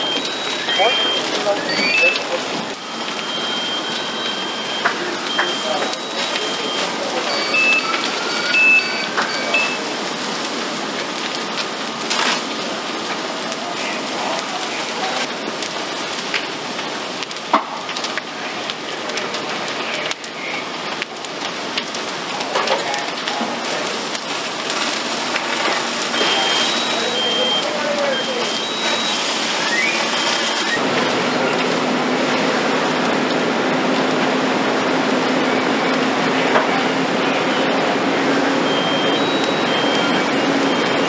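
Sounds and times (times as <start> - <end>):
short high beeps: 0.0 - 9.8, 26.1 - 30.8, 38.6 - 41.0
fire crackling and hissing: 0.0 - 41.0
sharp cracks and pops: 9.1 - 33.4.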